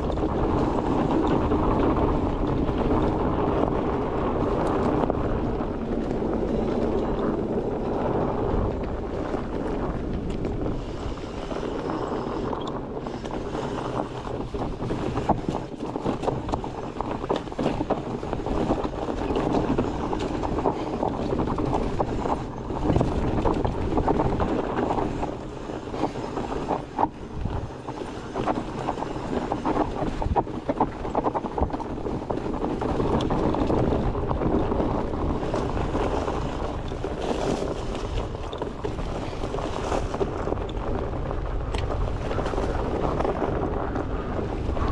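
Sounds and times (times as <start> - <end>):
bike tyre rumble on dirt: 0.0 - 44.9
wind on microphone: 0.0 - 44.9
bike rattles and knocks: 11.6 - 25.3.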